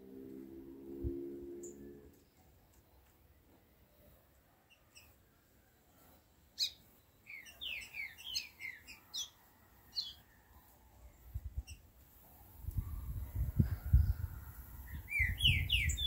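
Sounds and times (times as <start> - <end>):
bird singing whistles: 15.0 - 16.0.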